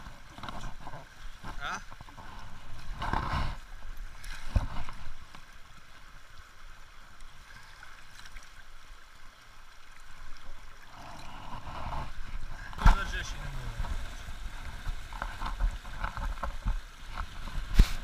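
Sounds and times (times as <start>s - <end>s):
shallow river water running: 0.0s - 18.0s.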